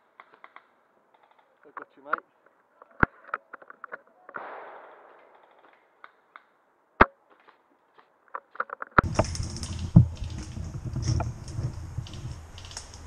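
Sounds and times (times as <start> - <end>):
airsoft rifle shots: 4.4 - 5.7
steady rough noise: 9.0 - 13.0.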